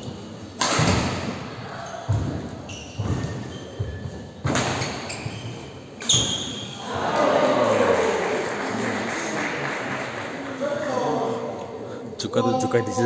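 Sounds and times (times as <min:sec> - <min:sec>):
shoes squeaking on wooden court: 0:00.0 - 0:06.8
racket striking shuttlecock: 0:00.6 - 0:01.4
crowd noise: 0:05.1 - 0:13.0.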